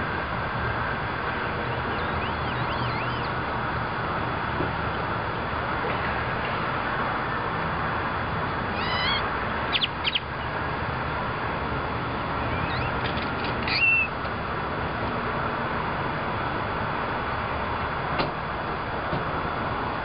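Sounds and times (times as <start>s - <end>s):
steady background noise: 0.0s - 20.0s
crow squeaky creaking calls: 1.9s - 3.3s, 8.7s - 10.3s, 12.4s - 14.1s.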